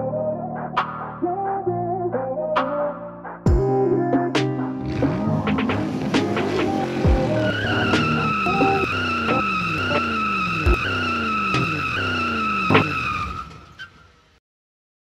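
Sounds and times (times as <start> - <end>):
music with falling slide: 0.0 - 13.1
high screech sound effect: 6.1 - 14.1.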